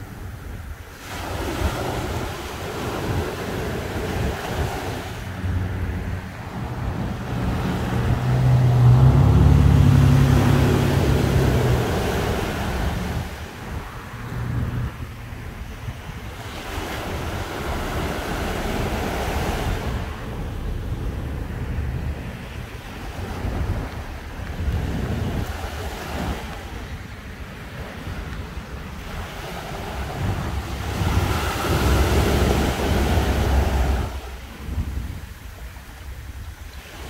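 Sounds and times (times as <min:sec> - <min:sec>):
small waves breaking on beach: 0:00.0 - 0:37.0
wind on microphone: 0:00.0 - 0:37.0
low motor hum: 0:05.3 - 0:13.2.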